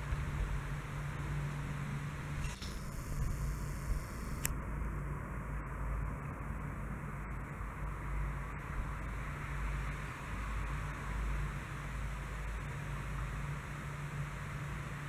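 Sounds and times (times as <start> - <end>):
low outdoor rumble: 0.0 - 15.0
sharp click: 2.4 - 4.6.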